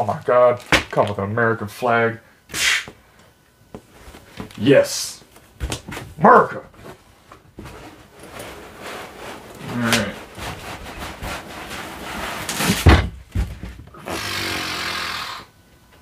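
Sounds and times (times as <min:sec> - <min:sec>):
cardboard rustling and scraping: 0:05.4 - 0:13.8
foam blocks rubbing: 0:06.8 - 0:15.2
heavy thump: 0:12.7 - 0:13.9.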